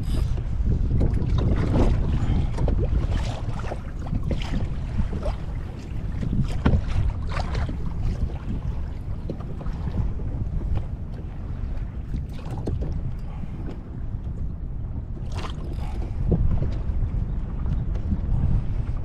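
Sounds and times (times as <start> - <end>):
waves slapping against hull: 0.0 - 19.0
wind buffeting microphone: 0.0 - 19.0.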